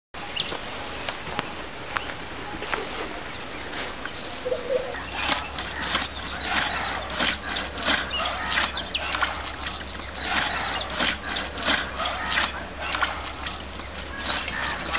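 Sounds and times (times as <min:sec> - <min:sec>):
birds chirping: 0:00.2 - 0:14.9
steady low hum: 0:00.2 - 0:14.9
fast trill of high chirps: 0:04.2 - 0:14.9.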